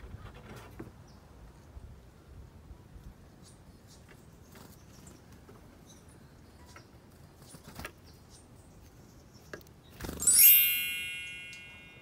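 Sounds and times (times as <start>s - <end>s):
short high chirps: 10.2s - 12.0s.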